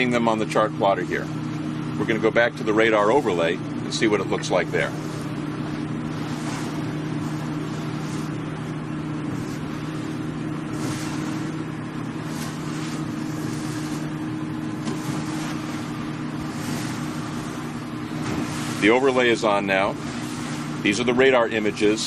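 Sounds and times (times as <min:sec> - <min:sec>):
motorboat engines droning: 0:00.0 - 0:22.0
wind and water hiss: 0:04.5 - 0:22.0.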